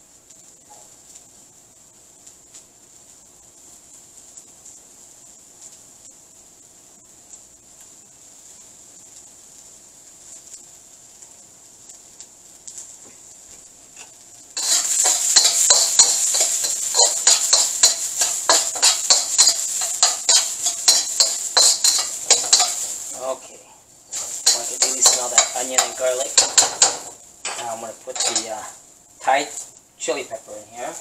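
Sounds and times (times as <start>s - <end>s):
garlic and onion sizzling in oil: 0.0s - 31.0s
metal spatula scraping wok: 14.0s - 23.4s, 24.1s - 28.8s.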